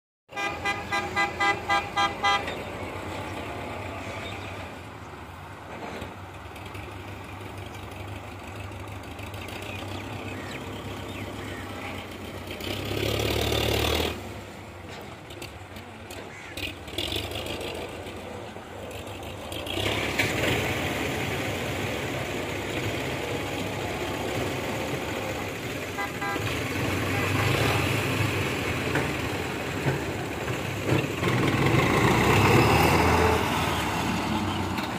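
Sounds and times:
horn tooting rapidly: 0.3s - 2.7s, 24.8s - 28.2s
tractor engines running: 0.3s - 34.9s.

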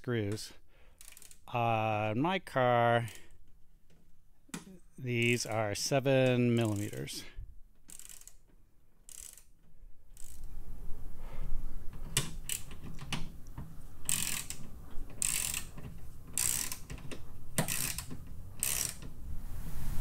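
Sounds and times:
ratchet clicking: 1.0s - 1.5s, 6.2s - 7.2s, 7.8s - 10.5s, 12.1s - 13.3s, 14.0s - 19.2s.

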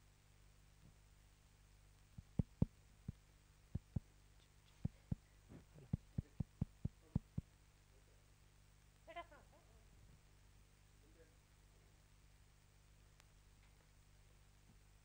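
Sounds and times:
faint steady hum: 0.0s - 15.0s
soft low thumps: 2.0s - 4.1s, 4.7s - 7.6s.

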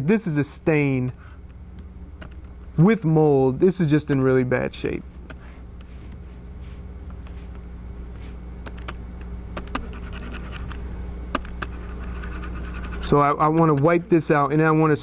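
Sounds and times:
low room hum: 0.0s - 15.0s
laptop keys clicking: 8.6s - 9.0s, 9.6s - 11.8s
trackpad rubbing: 9.6s - 10.8s, 11.4s - 14.0s.

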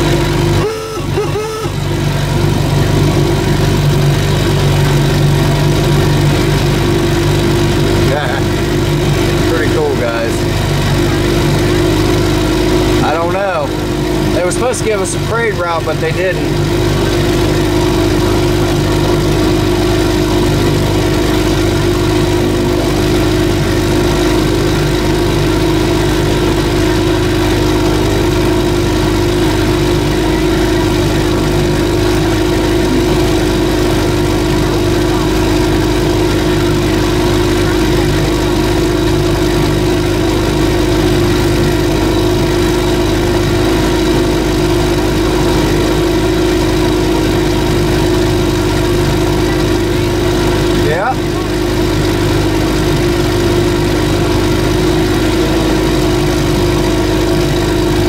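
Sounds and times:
boat engine idling: 0.0s - 58.0s.

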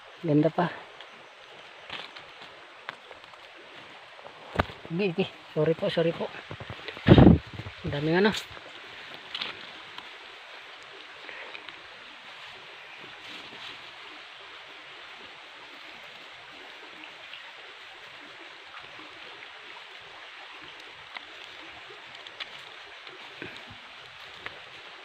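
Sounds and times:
plants rustling: 1.7s - 14.2s, 20.5s - 25.0s.

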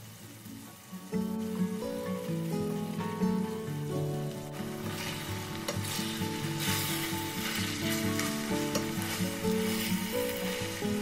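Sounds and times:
chicken sizzling in oil: 0.0s - 11.0s
background music: 0.6s - 11.0s
wooden spoon stirring in pan: 4.6s - 11.0s.

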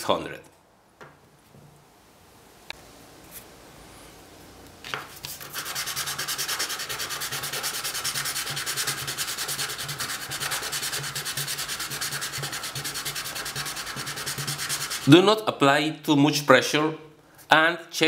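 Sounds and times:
piston rubbing on sandpaper: 5.2s - 15.1s.

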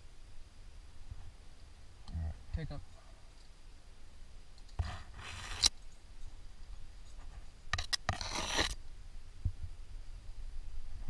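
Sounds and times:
hands scraping against rock: 4.8s - 5.7s, 7.1s - 8.8s.

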